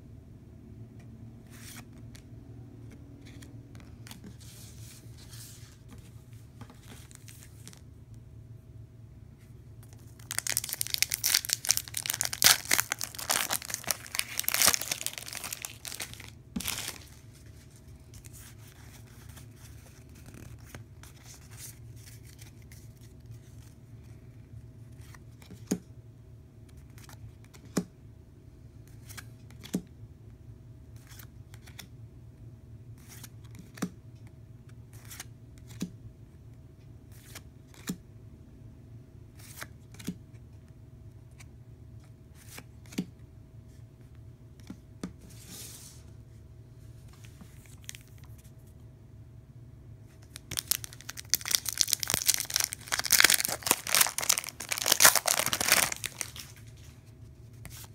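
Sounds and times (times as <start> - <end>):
cards being handled: 9.8 - 23.1, 50.2 - 56.9
foil wrapper tearing and crinkling: 9.9 - 17.2, 50.3 - 56.5.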